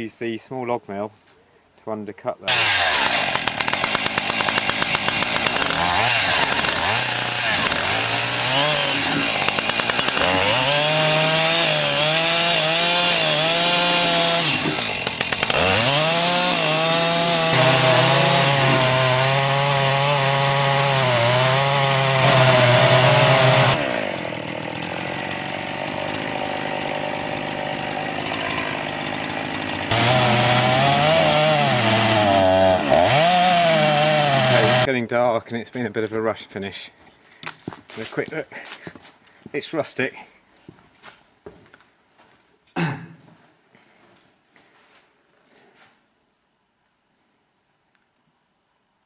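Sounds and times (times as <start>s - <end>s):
chainsaw cutting wood: 2.5s - 34.9s.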